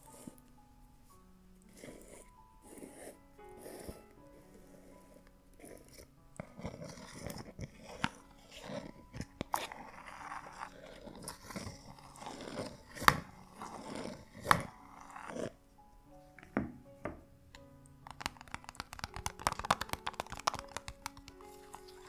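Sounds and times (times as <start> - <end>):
plastic crackling and crunching: 18.0 - 22.0
plastic lid being twisted off: 18.0 - 22.0.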